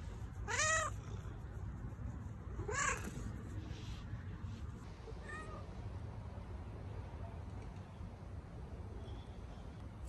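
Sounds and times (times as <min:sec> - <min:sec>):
cat meowing: 0:00.4 - 0:01.0, 0:02.6 - 0:03.1, 0:05.1 - 0:05.7.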